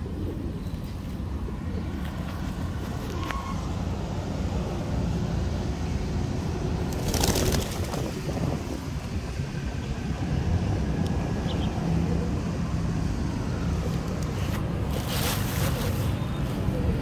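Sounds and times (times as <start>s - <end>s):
pigeons cooing: 0.0s - 3.6s, 11.6s - 12.8s, 13.6s - 17.0s
low rumble of street noise: 0.0s - 17.0s.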